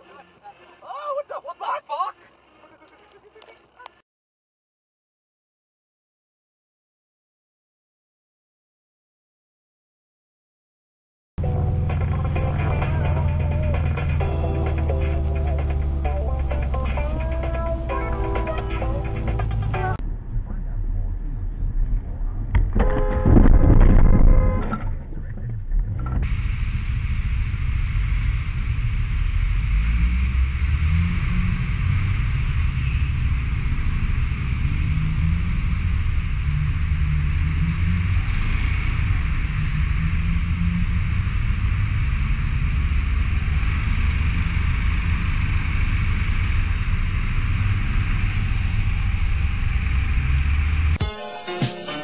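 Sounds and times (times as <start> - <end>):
music: 11.4 - 20.0, 51.0 - 52.0
motorcycle engine rumble: 11.4 - 51.0.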